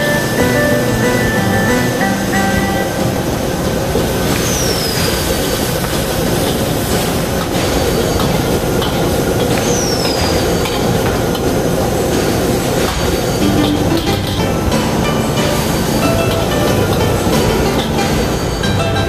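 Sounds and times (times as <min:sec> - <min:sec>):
high squeals falling in pitch: 0:00.0 - 0:05.3
wok burner roar and sizzle: 0:00.0 - 0:19.0.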